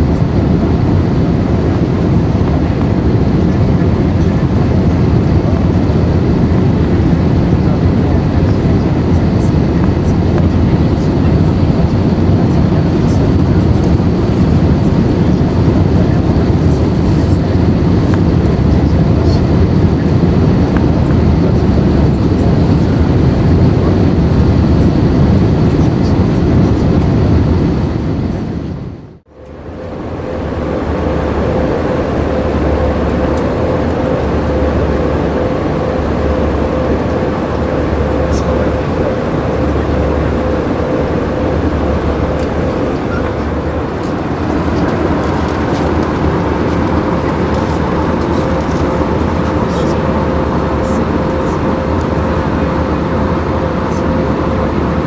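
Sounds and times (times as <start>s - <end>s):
aircraft cabin engine roar: 0.0s - 55.0s
steady hum tone: 0.0s - 55.0s.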